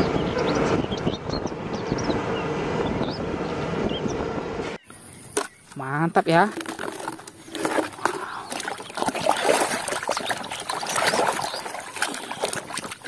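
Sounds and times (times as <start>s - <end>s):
water sloshing in a basin: 6.3s - 13.0s
water dripping: 6.6s - 13.0s.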